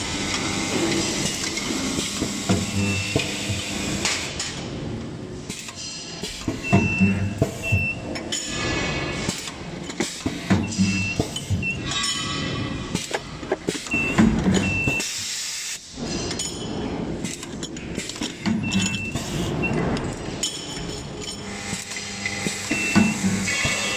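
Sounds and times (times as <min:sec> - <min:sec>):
metal parts clicking and clinking: 0:05.4 - 0:06.6, 0:08.2 - 0:15.0, 0:15.9 - 0:23.9.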